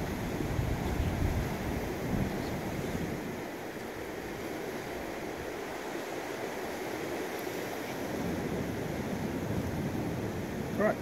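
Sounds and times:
wind on microphone: 0:00.0 - 0:05.9
surf on rocky shore: 0:00.0 - 0:11.0.

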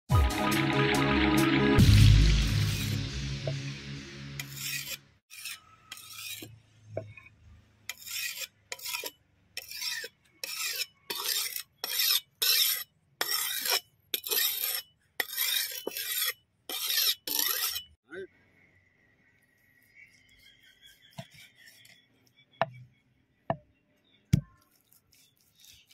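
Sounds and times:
knife scraping on whetstone: 0:02.5 - 0:03.6, 0:04.4 - 0:07.3, 0:07.9 - 0:18.0, 0:19.6 - 0:22.8, 0:24.6 - 0:25.9.

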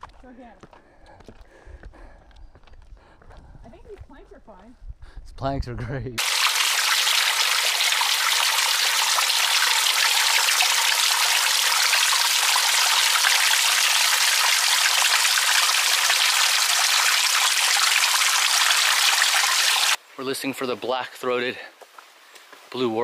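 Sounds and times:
water dripping onto rocks: 0:06.2 - 0:20.0.

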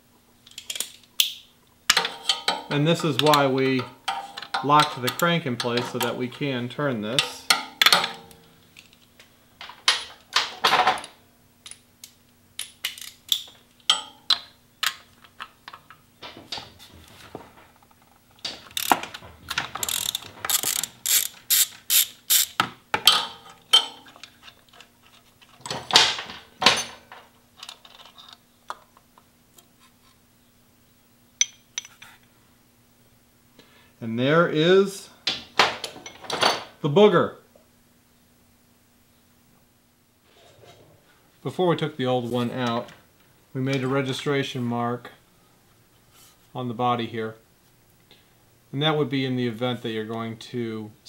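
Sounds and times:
ratchet wrench clicking: 0:18.7 - 0:19.0, 0:19.7 - 0:22.6.

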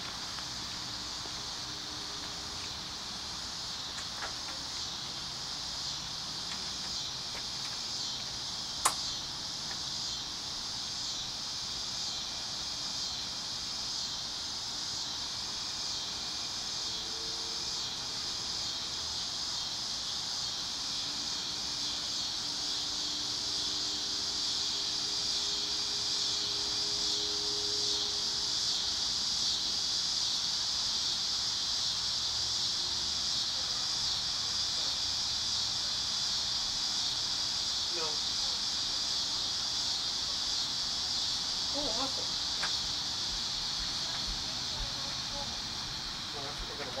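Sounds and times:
insects buzzing: 0:00.0 - 0:47.0
sharp click: 0:08.8 - 0:09.1.

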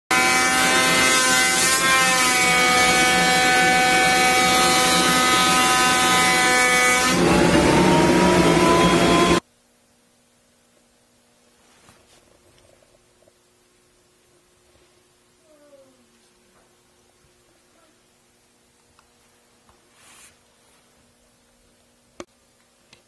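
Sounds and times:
thicknessing machine motor whine: 0:02.4 - 0:09.4.

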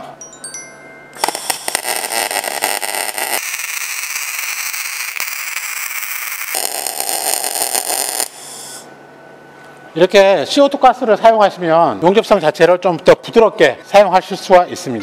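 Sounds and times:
welding arc crackling: 0:01.2 - 0:08.9.

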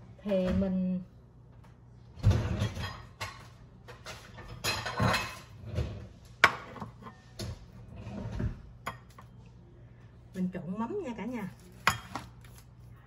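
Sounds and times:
ceramic bowl and utensils clattering: 0:02.3 - 0:07.6, 0:11.7 - 0:12.5.

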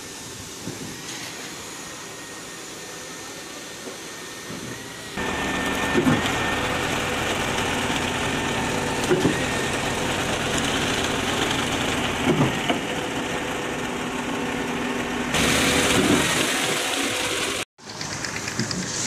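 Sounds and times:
diesel engines running: 0:04.8 - 0:19.0.

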